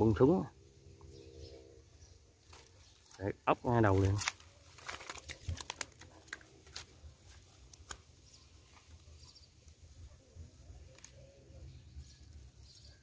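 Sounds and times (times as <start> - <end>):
fish rustling: 4.2 - 8.0.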